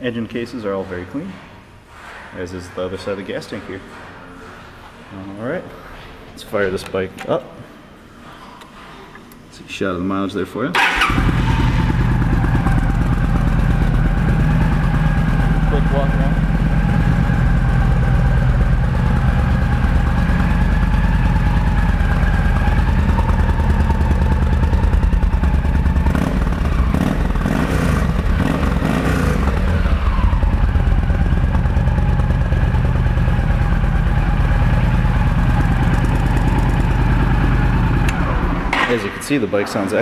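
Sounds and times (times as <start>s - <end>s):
motorcycle engine idling: 10.8s - 38.8s.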